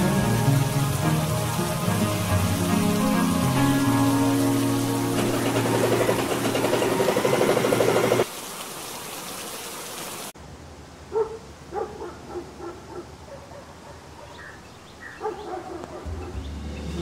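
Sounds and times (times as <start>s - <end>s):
heavy rain: 0.0s - 10.4s.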